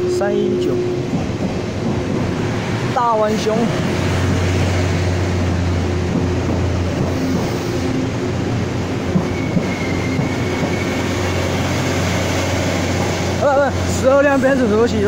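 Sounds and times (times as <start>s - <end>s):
diesel train engine hum: 0.0s - 15.0s
rail and wheel noise: 0.0s - 15.0s
high wheel squeal: 9.2s - 12.0s.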